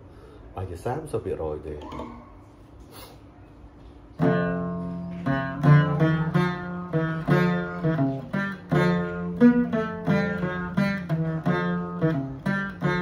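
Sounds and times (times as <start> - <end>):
lute plucked notes: 4.1 - 13.0
low open string ringing: 4.2 - 13.0.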